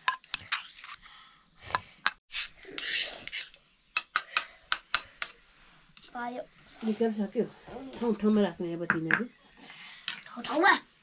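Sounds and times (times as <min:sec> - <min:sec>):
scraping rub: 0:02.3 - 0:03.6.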